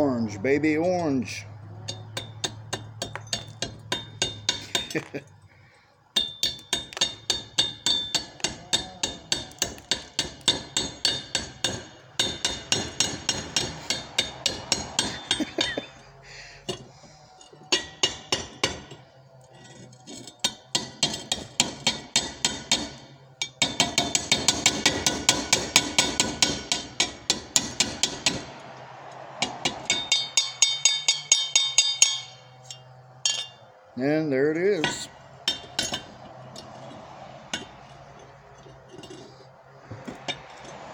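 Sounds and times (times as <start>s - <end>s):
chipping hammer striking metal: 1.9s - 5.2s, 6.2s - 15.9s, 17.7s - 19.0s, 19.6s - 28.5s, 34.8s - 36.7s.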